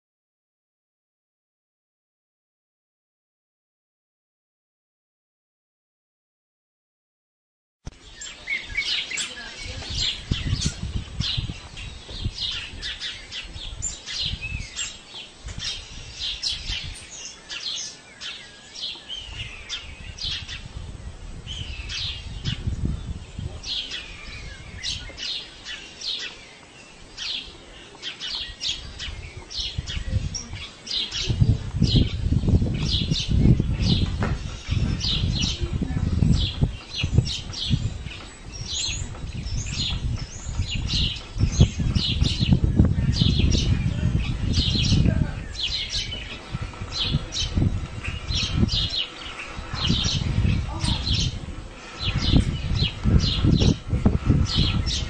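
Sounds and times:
small birds chirping: 7.9 - 55.0
low rumbling noise: 31.2 - 55.0.

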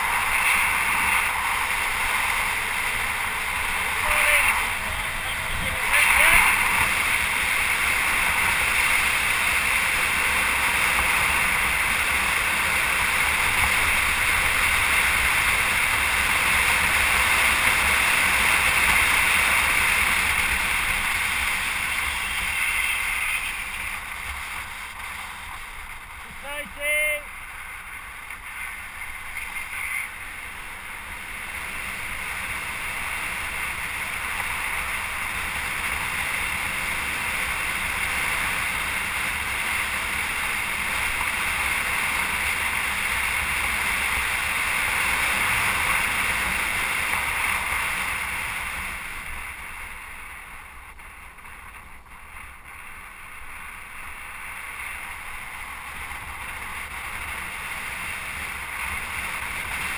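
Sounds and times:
wind rushing on microphone: 0.0 - 26.8
road noise: 0.0 - 59.9.

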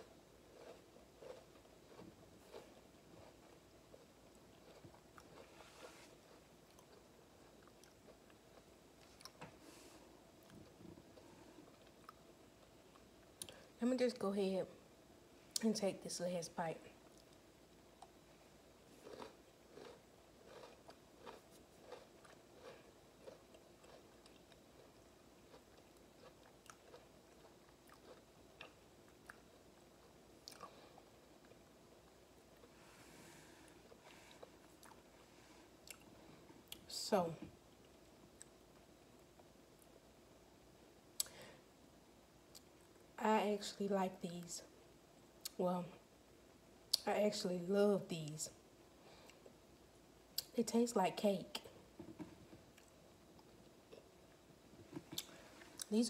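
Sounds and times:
faint chewing of cookie: 0.0 - 13.8, 16.9 - 40.2, 41.0 - 41.7, 42.4 - 43.0, 48.5 - 50.5, 51.5 - 56.0.

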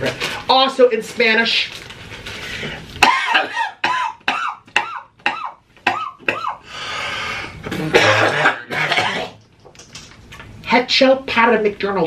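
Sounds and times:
noisy in-breath: 2.2 - 3.0, 6.6 - 7.7.

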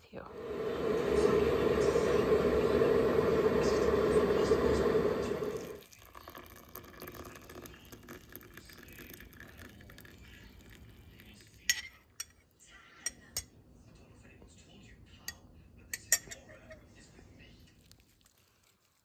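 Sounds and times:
electric kettle boiling: 0.0 - 11.4
water pouring into mug: 0.3 - 11.7
spoon clinking against mug: 16.0 - 16.7.

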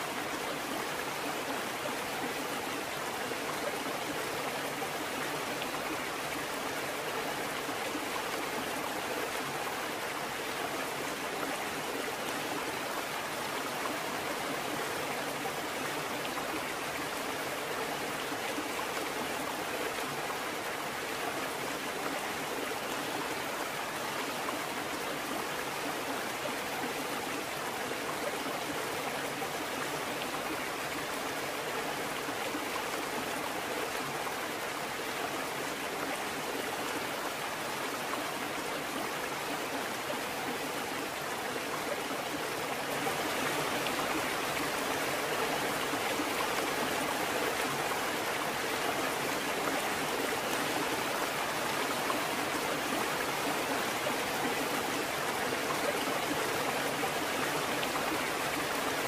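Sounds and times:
rushing water: 0.0 - 59.0.

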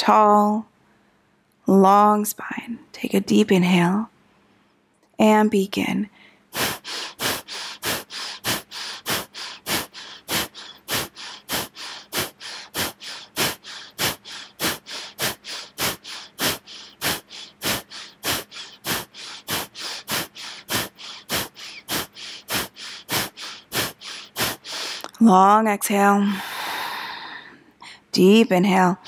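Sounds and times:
person breathing forcefully: 6.2 - 25.2, 26.2 - 28.1.

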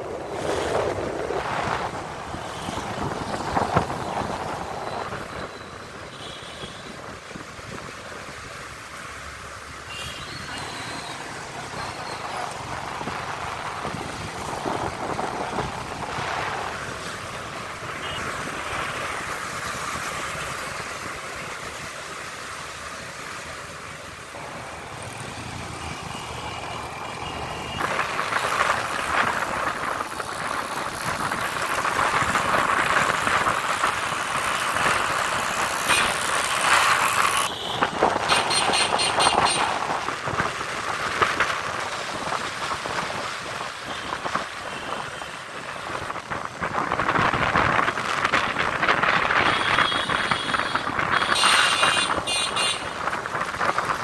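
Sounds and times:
wind rushing over microphone: 0.0 - 5.5, 12.4 - 20.1, 27.7 - 35.8, 37.8 - 54.0.

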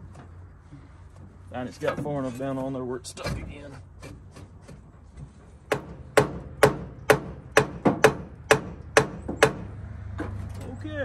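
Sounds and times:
hammer knocks on metal: 5.7 - 10.4.

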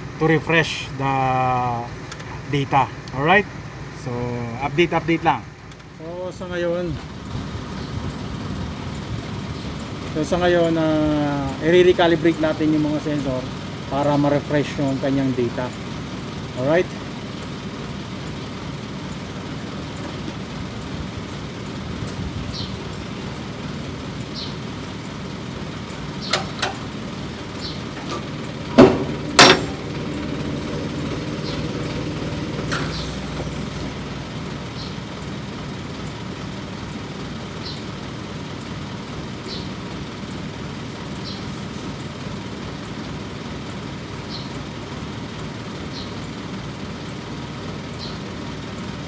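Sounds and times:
truck engine idling: 0.0 - 49.0
loud sharp knocks: 28.7 - 29.8.

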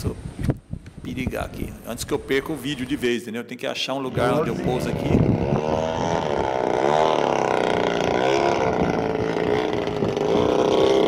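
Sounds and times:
engine running: 4.1 - 11.0.

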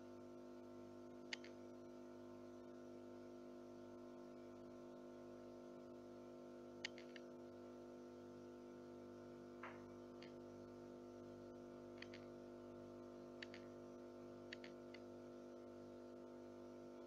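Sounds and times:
faint steady hum: 0.0 - 17.0
faint clicks: 1.3 - 1.6, 6.8 - 7.3, 12.0 - 12.3, 13.4 - 13.7, 14.5 - 15.1.

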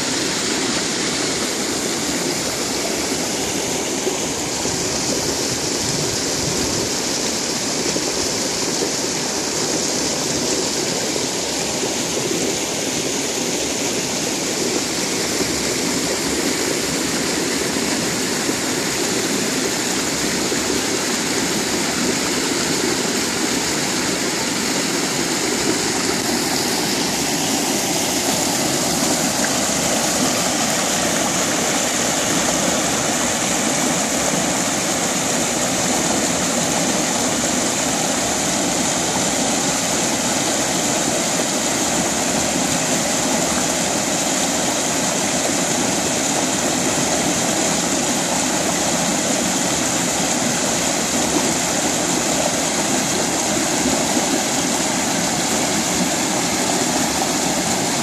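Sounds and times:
creek cascade rushing over boulders: 0.0 - 58.0.

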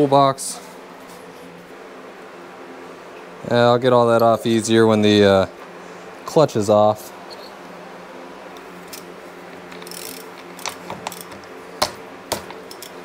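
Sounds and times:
fan humming: 0.0 - 13.0
metal clicks and knocks: 9.7 - 13.0.

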